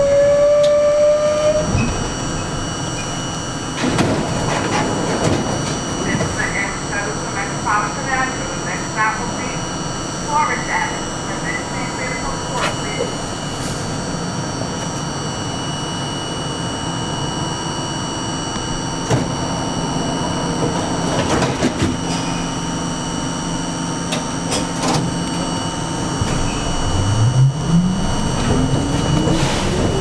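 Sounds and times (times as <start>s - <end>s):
subway car low hum: 0.0s - 30.0s
high whines: 25.3s - 30.0s.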